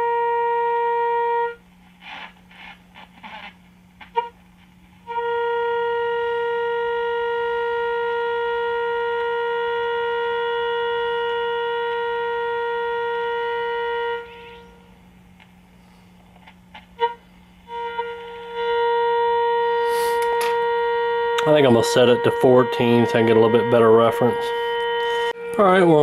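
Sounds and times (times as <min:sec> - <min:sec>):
steady radio test tone: 0:19.7 - 0:20.4, 0:21.3 - 0:26.0.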